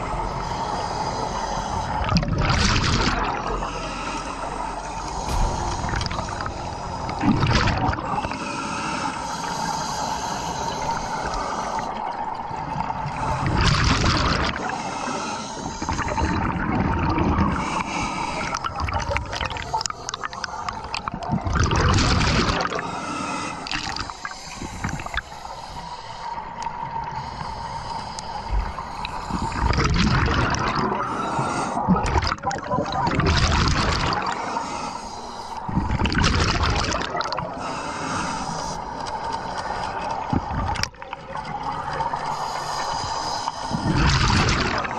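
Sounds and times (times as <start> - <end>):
underwater bubbling and gurgling: 0.0 - 44.9
scuba regulator exhaled bubbles: 2.0 - 3.6, 5.0 - 8.5, 12.8 - 14.8, 18.4 - 22.8, 29.3 - 31.1, 31.8 - 34.4, 35.7 - 37.6, 43.7 - 44.9.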